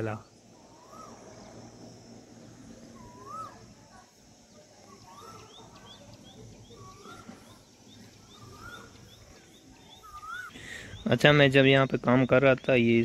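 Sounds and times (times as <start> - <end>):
bird rising and falling call: 0.0 - 1.8, 2.4 - 3.7, 4.8 - 11.1.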